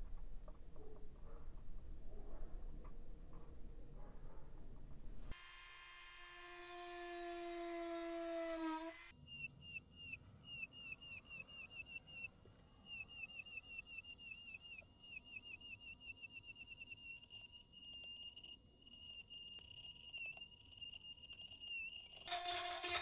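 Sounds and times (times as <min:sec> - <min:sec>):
rotary tool high-pitched whine: 0:05.3 - 0:23.0.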